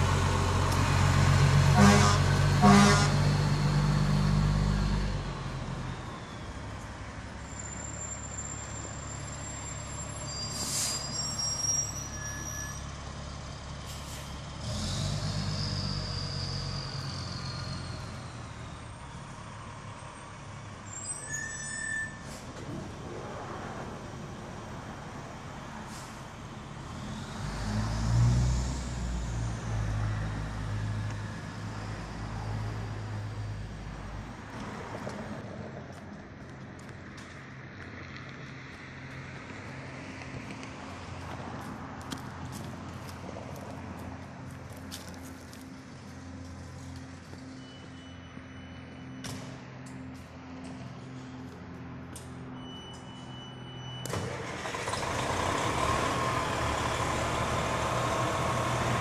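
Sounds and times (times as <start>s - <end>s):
diesel truck engine running: 0.0s - 10.0s, 54.0s - 59.0s
high brake squeals: 7.4s - 13.0s, 13.9s - 19.3s, 20.8s - 22.6s, 47.3s - 49.6s, 52.4s - 55.0s
air brake hisses: 10.4s - 11.4s, 13.9s - 14.4s, 25.8s - 26.2s.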